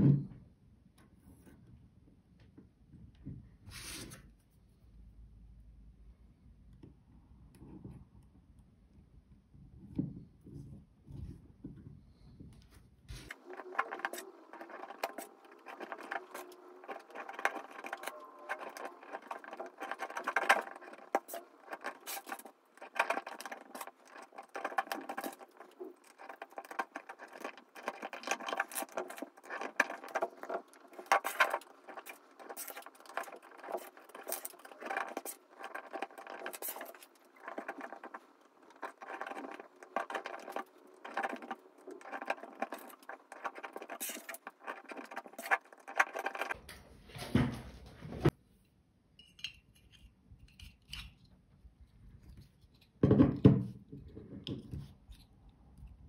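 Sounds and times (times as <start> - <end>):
metal laminations clinking: 13.3 - 46.6.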